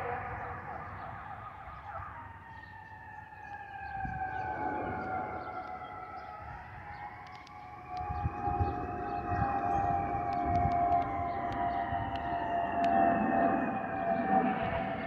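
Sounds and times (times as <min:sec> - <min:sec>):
jet engines rumbling: 0:00.0 - 0:15.0
aircraft vents whistling: 0:04.0 - 0:15.0.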